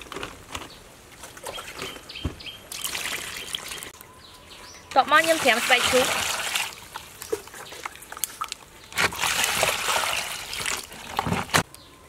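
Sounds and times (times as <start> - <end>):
water pouring into a plastic bowl: 9.1 - 11.3.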